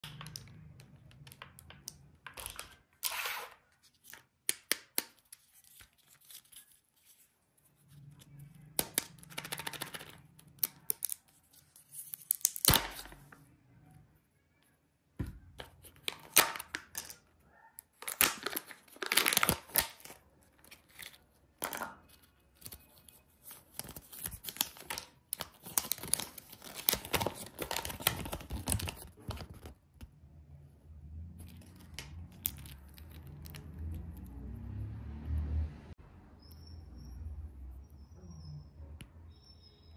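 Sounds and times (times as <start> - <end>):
paper crinkling: 5.2 - 8.4, 22.0 - 29.8
plastic wrapper tearing: 18.0 - 20.2, 23.7 - 29.7.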